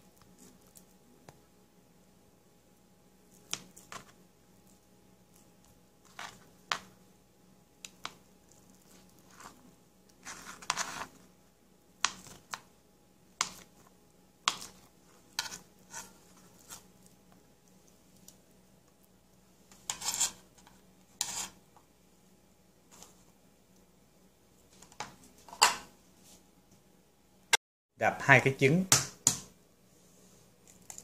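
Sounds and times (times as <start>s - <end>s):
knife scraping: 10.2s - 11.2s, 14.5s - 16.9s, 19.7s - 21.6s.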